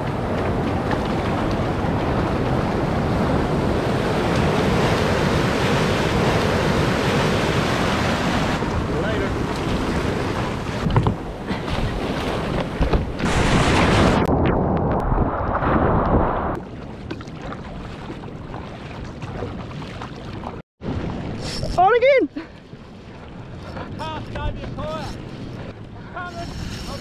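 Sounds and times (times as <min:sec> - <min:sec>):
surf crashing: 0:00.0 - 0:16.6.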